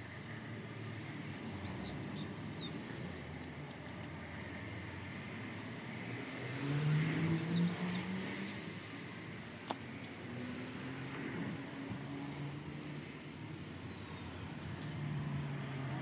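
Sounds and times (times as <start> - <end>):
bird chirp: 1.6 - 3.4, 7.2 - 8.8.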